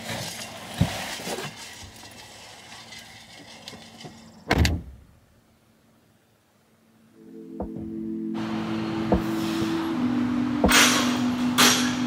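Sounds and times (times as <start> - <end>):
car door shutting: 7.6 - 8.0, 9.1 - 9.7.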